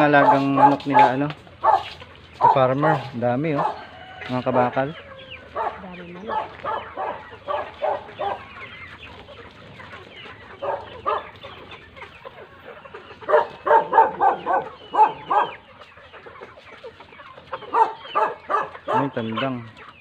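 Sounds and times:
chickens clucking: 0:00.0 - 0:20.0.

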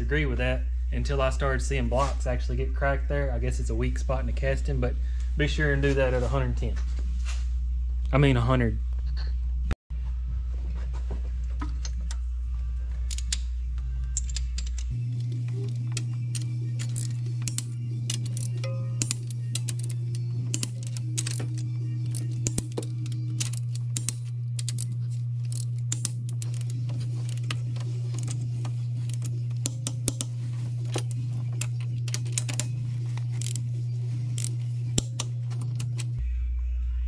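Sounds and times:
steady low hum: 0:00.0 - 0:37.0
ratchet and torque wrench clicks: 0:14.1 - 0:33.7, 0:34.4 - 0:36.2.

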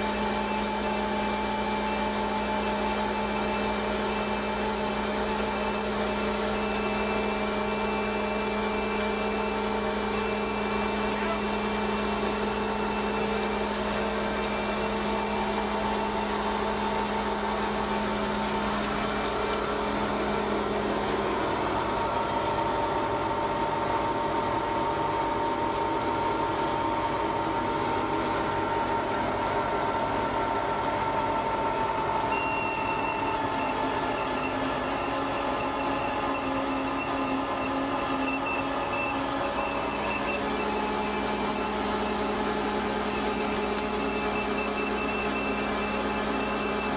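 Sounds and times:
auger system running: 0:00.0 - 0:46.9.

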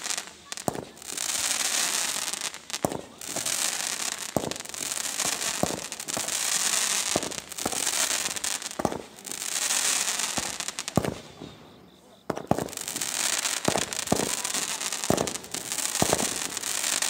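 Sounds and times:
firework bangs: 0:00.0 - 0:17.0
firework hissing: 0:00.0 - 0:17.0.

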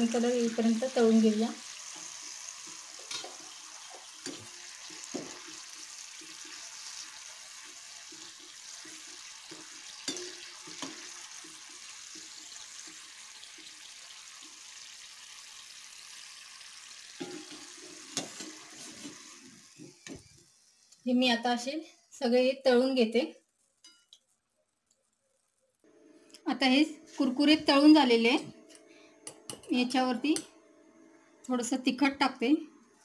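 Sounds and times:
batter sizzling in hot oil: 0:00.0 - 0:21.6
steel spoon clinking on pan: 0:10.0 - 0:11.0, 0:23.8 - 0:24.2.

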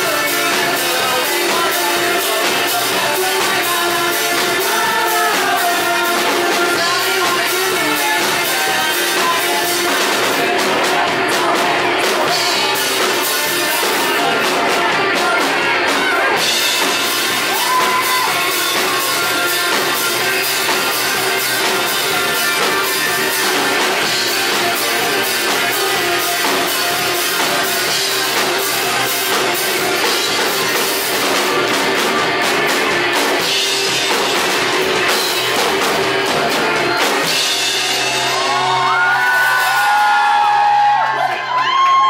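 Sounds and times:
electric bass: 0:00.0 - 0:41.6
distorted electric guitar: 0:00.0 - 0:42.0
drum kit playing: 0:00.0 - 0:42.0
audience whooping: 0:17.1 - 0:20.0, 0:36.7 - 0:42.0.

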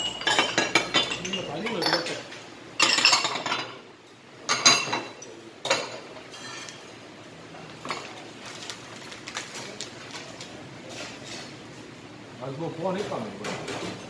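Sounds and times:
spoon and chopsticks clinking on pots: 0:00.0 - 0:03.8, 0:04.5 - 0:06.8.

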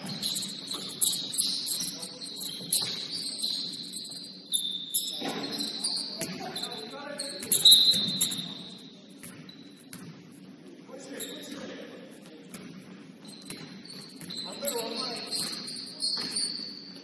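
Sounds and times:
ball bouncing: 0:00.0 - 0:03.2, 0:05.2 - 0:06.5, 0:07.4 - 0:08.5, 0:09.2 - 0:10.2, 0:12.5 - 0:14.4
shoes squeaking on court floor: 0:00.0 - 0:10.1, 0:11.0 - 0:11.7, 0:12.3 - 0:17.0.

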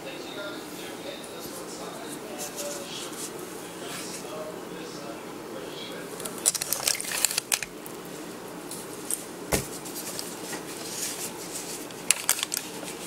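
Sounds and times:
plastic bag crinkling: 0:06.2 - 0:07.8, 0:10.0 - 0:13.0.

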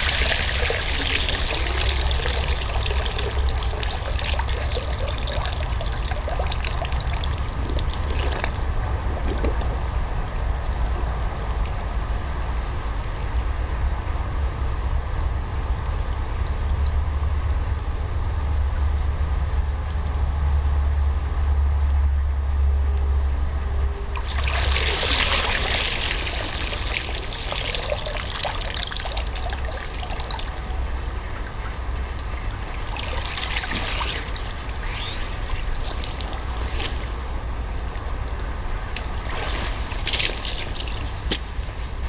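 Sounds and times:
water running off clothes: 0:00.0 - 0:08.6, 0:24.2 - 0:37.4, 0:39.2 - 0:41.6
water splashing in pool: 0:00.0 - 0:10.0, 0:24.2 - 0:41.9.

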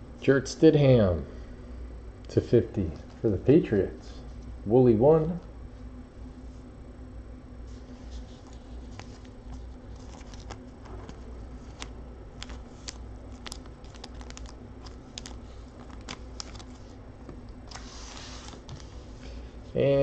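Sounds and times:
cards rustling: 0:07.7 - 0:17.0, 0:17.6 - 0:19.1.

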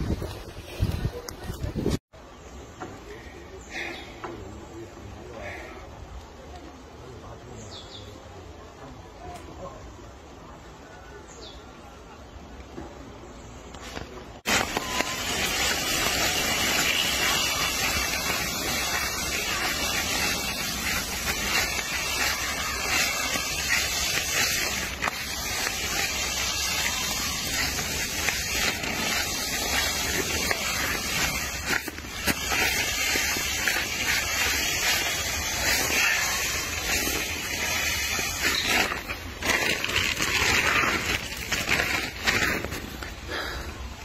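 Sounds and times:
steady hiss: 0:13.8 - 0:44.0.

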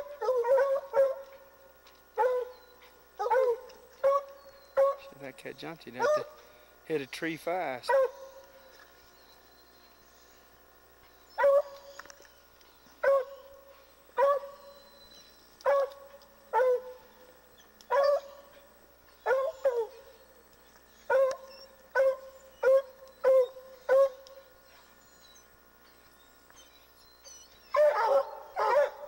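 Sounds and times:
hound barking: 0:00.0 - 0:01.4, 0:02.2 - 0:05.2, 0:05.9 - 0:06.5, 0:07.8 - 0:08.4, 0:11.4 - 0:11.8, 0:13.0 - 0:13.5, 0:14.2 - 0:14.8, 0:15.6 - 0:17.1, 0:17.9 - 0:20.1, 0:21.1 - 0:24.4, 0:27.7 - 0:29.0.

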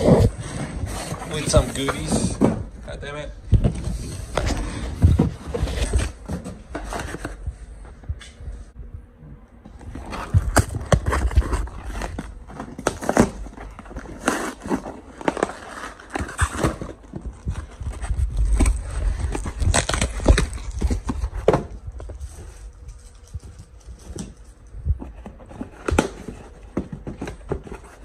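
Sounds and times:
cardboard crackling and knocking: 0:09.7 - 0:22.2
packing tape ripping: 0:18.5 - 0:21.2.

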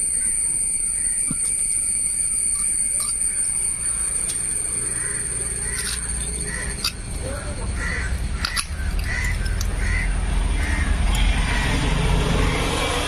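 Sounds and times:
crows cawing: 0:04.8 - 0:12.8.

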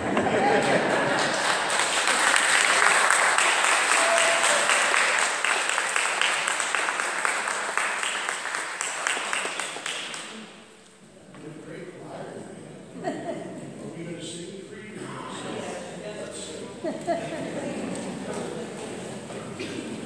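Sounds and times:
crowd clapping: 0:00.0 - 0:10.6, 0:17.5 - 0:20.0.

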